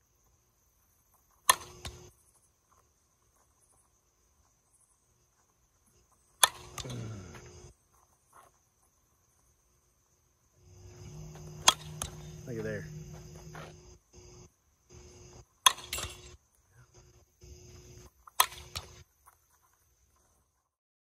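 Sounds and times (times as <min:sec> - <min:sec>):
crickets chirping: 0:00.0 - 0:20.8
softball bat hitting ball: 0:01.4 - 0:02.1, 0:06.4 - 0:07.0, 0:10.9 - 0:13.5, 0:15.6 - 0:16.4, 0:18.3 - 0:19.0.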